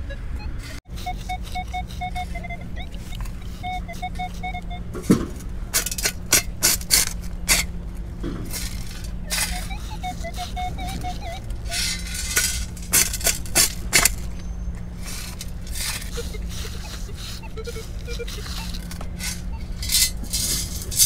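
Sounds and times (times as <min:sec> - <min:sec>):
metal detector beeps: 0:00.0 - 0:05.2, 0:08.7 - 0:21.0
metal scoop scraping sand: 0:00.9 - 0:04.7, 0:05.7 - 0:07.7, 0:08.4 - 0:21.0.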